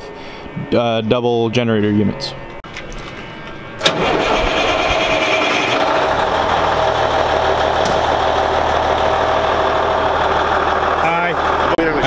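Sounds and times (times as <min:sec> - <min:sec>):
diesel truck engine idling: 0:03.9 - 0:12.0.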